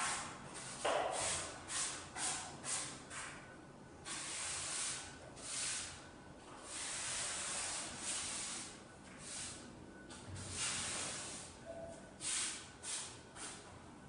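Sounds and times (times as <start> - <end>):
broom sweeping concrete floor: 0.0 - 3.4, 4.0 - 11.6, 12.2 - 13.7.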